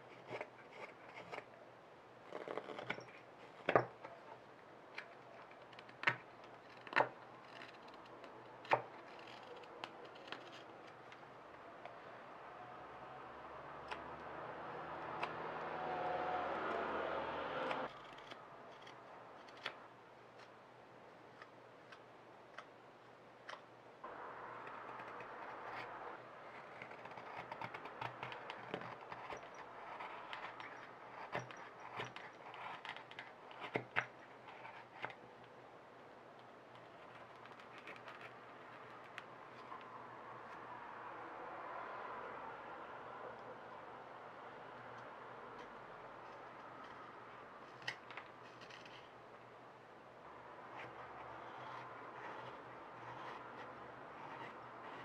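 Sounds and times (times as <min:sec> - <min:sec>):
carving knife slicing wood: 0:00.0 - 0:01.5, 0:05.2 - 0:11.0, 0:13.8 - 0:19.8, 0:24.6 - 0:35.2, 0:50.6 - 0:55.0.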